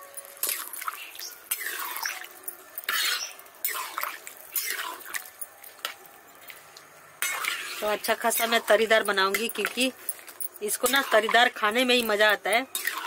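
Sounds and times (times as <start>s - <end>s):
spatula scraping pan: 7.2s - 10.0s, 12.7s - 13.0s
metal spatula stirring liquid gravy: 12.6s - 13.0s.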